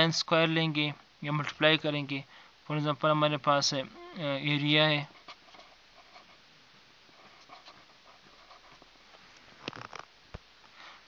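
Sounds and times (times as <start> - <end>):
marker scratching on paper: 5.1 - 6.4, 7.2 - 8.9.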